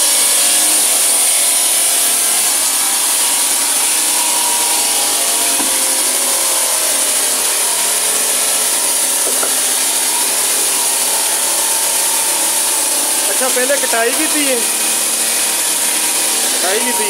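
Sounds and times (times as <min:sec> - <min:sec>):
faint machine whine: 0:00.0 - 0:17.0
disc grinding across marble: 0:04.7 - 0:17.0.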